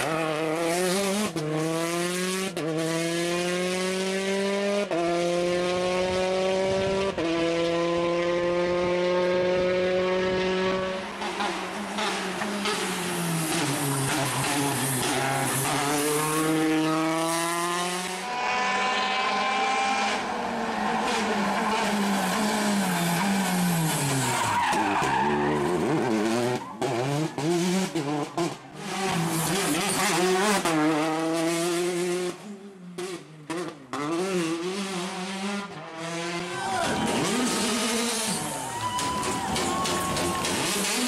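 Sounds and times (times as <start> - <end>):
rally car engine revving: 0.0 - 41.0
tyres skidding on tarmac: 10.7 - 31.1, 33.5 - 41.0.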